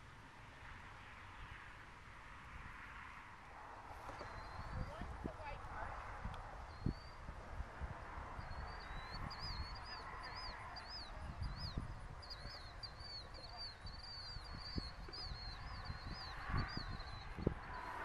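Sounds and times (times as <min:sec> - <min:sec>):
bird chirping: 0:04.0 - 0:05.6, 0:06.7 - 0:07.2, 0:08.4 - 0:18.0.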